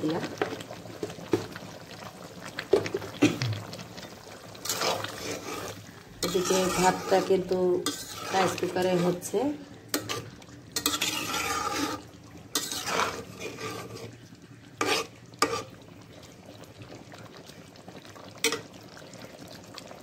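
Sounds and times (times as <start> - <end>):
gravy simmering: 0.0 - 20.0
metal spatula scraping a pot: 4.6 - 14.2, 14.8 - 15.8.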